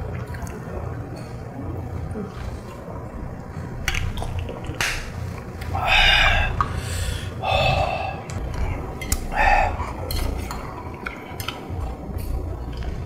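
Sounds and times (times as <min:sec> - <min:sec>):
utensils clinking on dishes: 0:10.0 - 0:12.4.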